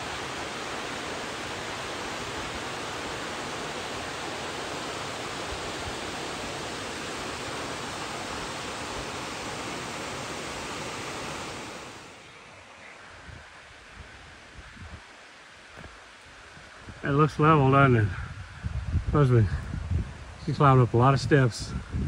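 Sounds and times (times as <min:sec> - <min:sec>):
waterfall rushing: 0:00.0 - 0:12.8.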